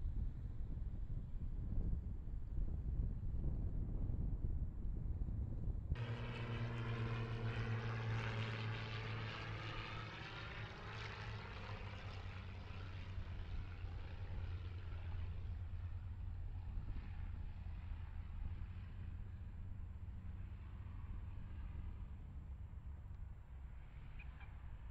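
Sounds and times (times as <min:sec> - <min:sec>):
propeller airplane engine drone: 0:05.8 - 0:24.9.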